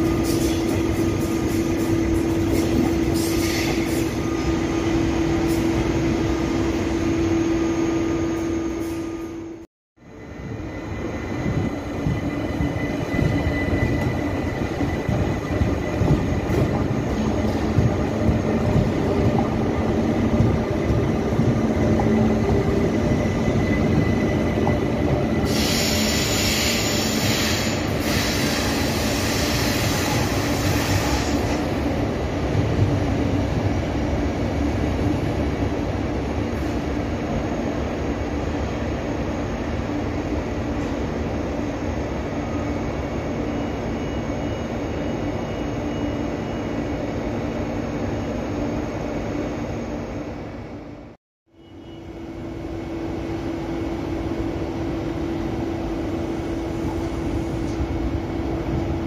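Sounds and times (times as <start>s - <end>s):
train wheels rumbling on rails: 0.0s - 7.7s, 8.4s - 46.6s
loud high hiss or squeal: 2.5s - 4.2s, 25.4s - 31.6s.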